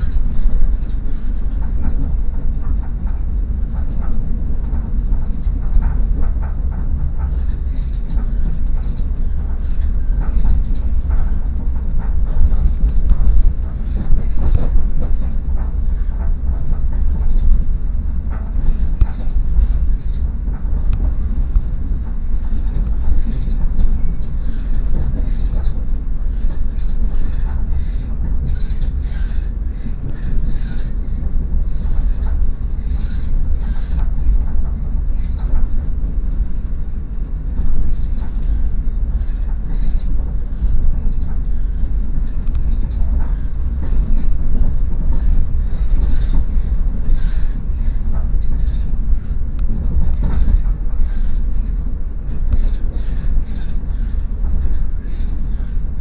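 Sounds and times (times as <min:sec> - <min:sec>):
train wheels rumbling on track: 0:00.0 - 0:56.0.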